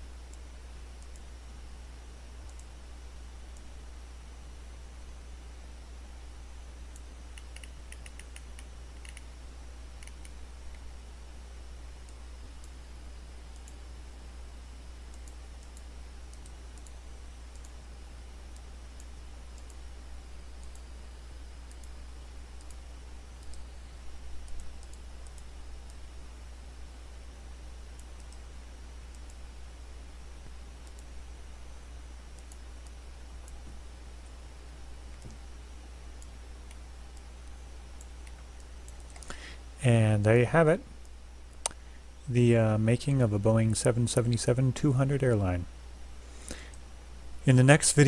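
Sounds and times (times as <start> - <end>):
low electrical hum: 0.0 - 48.0
computer mouse and keyboard clicks: 6.9 - 9.3, 10.0 - 10.8.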